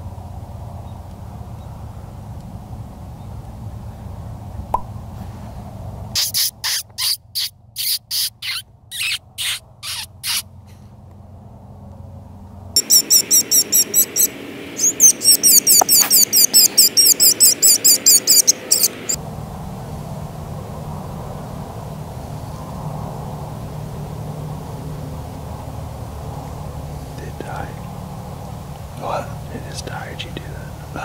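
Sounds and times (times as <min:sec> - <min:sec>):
electronic prey distress cries: 0:12.8 - 0:19.2
high-pitched squeals: 0:12.8 - 0:19.2.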